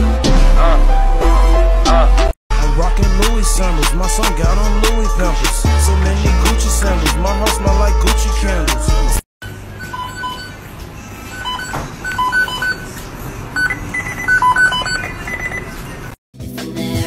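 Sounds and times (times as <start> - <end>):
short electronic beeps: 9.4 - 10.6, 11.3 - 12.9, 13.6 - 15.8.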